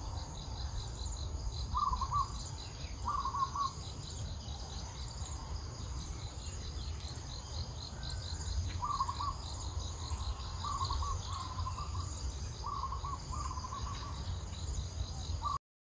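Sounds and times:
insects chirring: 0.0s - 15.6s
bird trilled calls: 1.6s - 4.0s, 7.9s - 14.5s, 15.1s - 15.6s.

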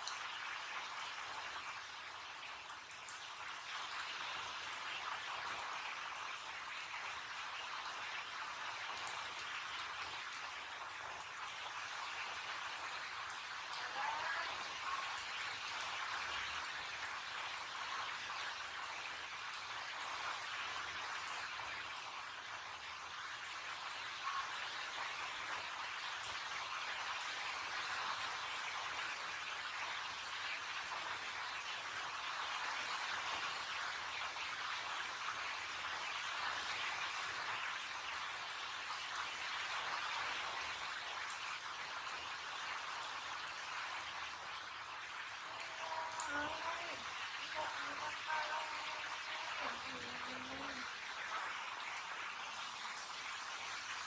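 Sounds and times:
heavy rain falling: 0.0s - 54.0s.

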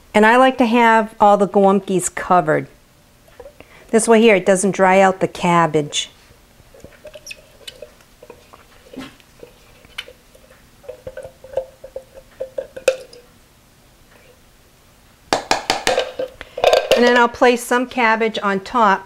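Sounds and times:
squeaking: 6.8s - 9.2s
spatula scraping tin can: 6.8s - 13.2s.

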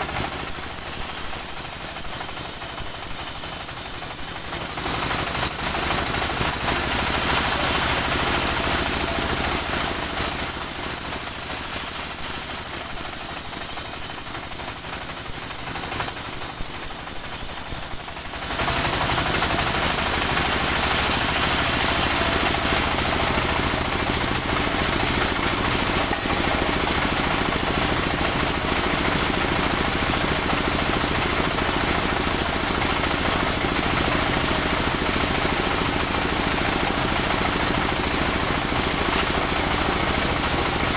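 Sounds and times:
sawmill engine running: 0.0s - 40.9s
band saw blade cutting log: 18.4s - 29.8s.

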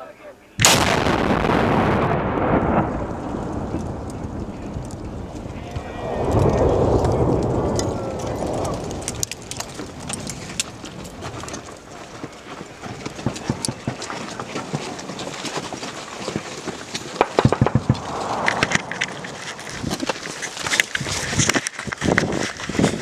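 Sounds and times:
gravel falling on rocks: 3.0s - 23.0s
footsteps on rock and gravel: 9.4s - 17.2s.

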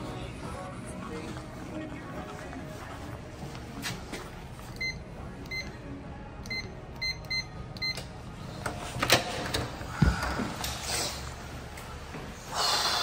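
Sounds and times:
keypad beeps: 4.8s - 5.7s, 6.5s - 8.0s.

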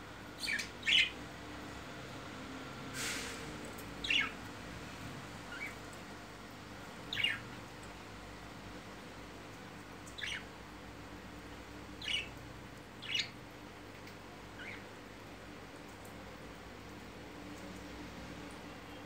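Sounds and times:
budgerigars chirping: 0.4s - 1.2s, 4.0s - 4.3s, 7.1s - 7.4s, 10.2s - 10.5s, 12.0s - 12.3s, 13.0s - 13.3s.

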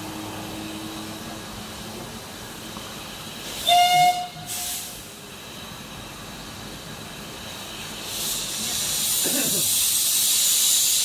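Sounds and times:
steam hiss: 0.0s - 11.0s
train running noise: 0.0s - 11.0s
steam whistle blast: 3.6s - 5.0s.

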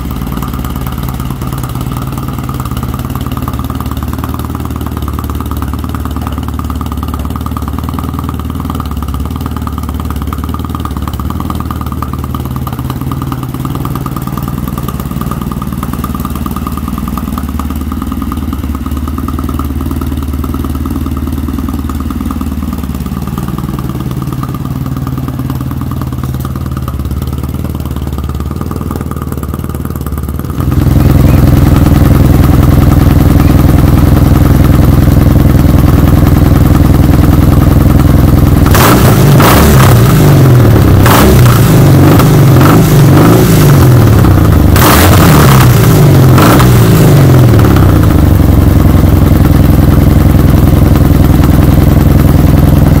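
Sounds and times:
motorcycle engine idling: 0.0s - 53.0s
engine throttle blips: 21.6s - 53.0s.

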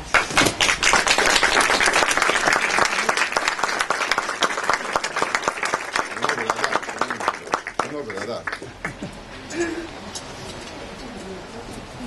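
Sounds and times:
crowd applauding: 0.0s - 9.3s.

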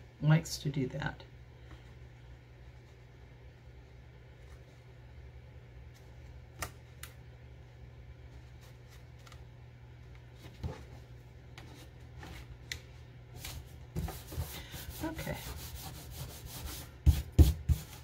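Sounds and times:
steady low hum: 0.0s - 18.0s
hands rubbing paper: 13.4s - 18.0s.

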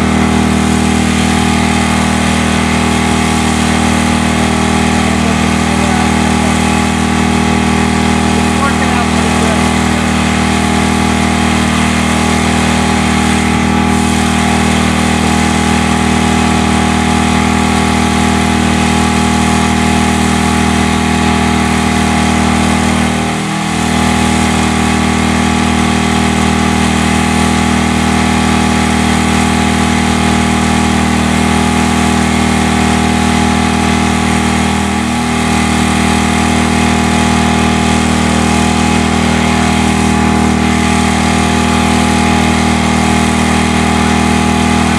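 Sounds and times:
machine humming loudly: 0.0s - 44.9s.

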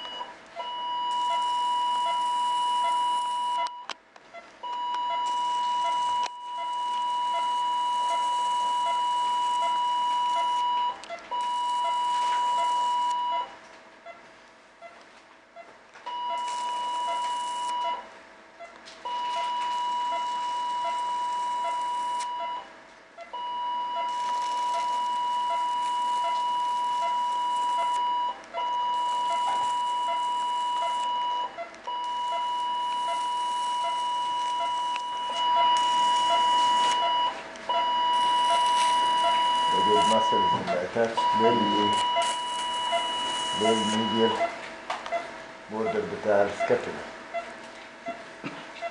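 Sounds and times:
steady high beep: 4.8s - 13.5s, 19.1s - 22.7s, 23.3s - 44.6s.

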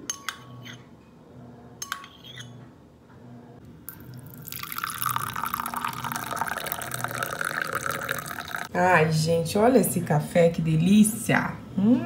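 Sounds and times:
coffee pouring into a cup: 3.9s - 8.7s.

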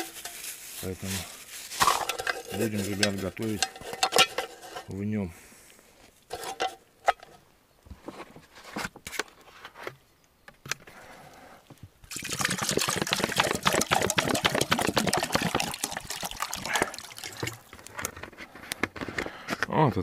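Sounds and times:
water glugging and splashing: 12.1s - 18.0s.

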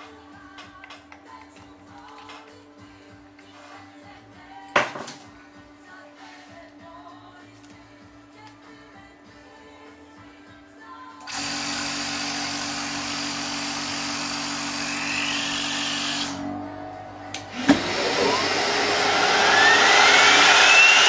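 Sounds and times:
machine whine rising in pitch: 11.3s - 21.0s
machine motor hum and whoosh: 11.9s - 21.0s.

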